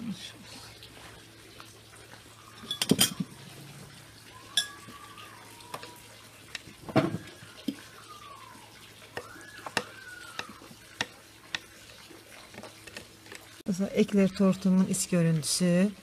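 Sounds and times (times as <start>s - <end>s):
cutlery and plates clinking: 2.6s - 3.4s.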